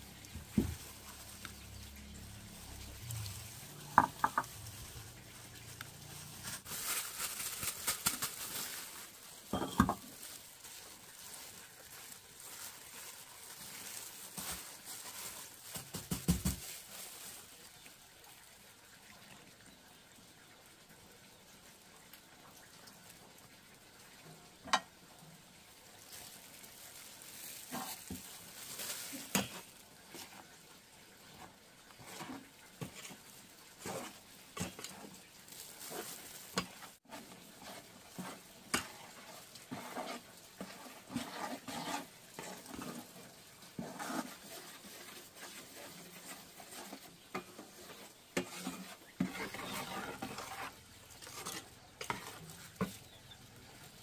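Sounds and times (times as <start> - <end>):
utensil stirring and scraping: 0.0 - 6.8, 8.9 - 16.6, 26.9 - 30.6, 31.2 - 54.0
faint steady sizzle: 0.0 - 54.0.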